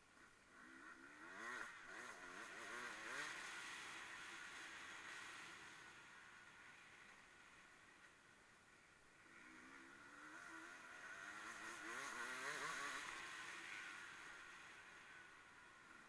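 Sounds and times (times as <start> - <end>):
distant racing engine revving: 9.3 - 13.7.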